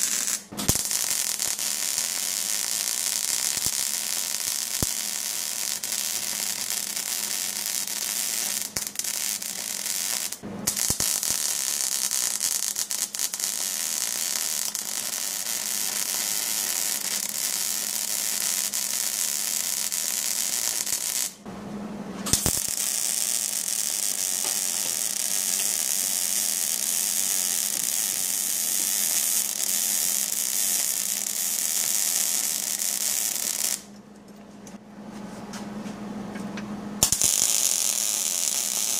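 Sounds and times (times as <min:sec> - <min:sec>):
welding arc crackling: 0:00.0 - 0:21.4, 0:22.3 - 0:33.9, 0:37.0 - 0:38.9.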